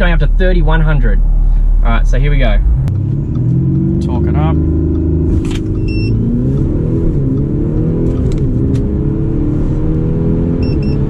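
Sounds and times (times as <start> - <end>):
diesel engine at full throttle: 0.0 - 11.0
gear upshifts: 2.3 - 11.0.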